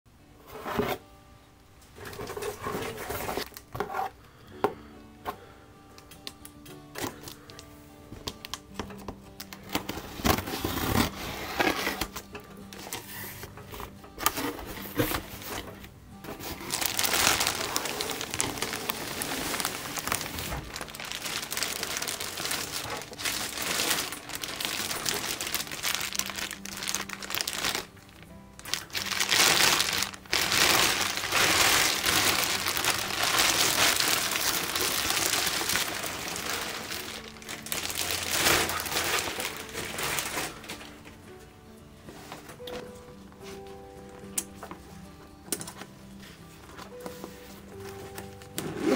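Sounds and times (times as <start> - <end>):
packaging crinkling: 16.3 - 41.2.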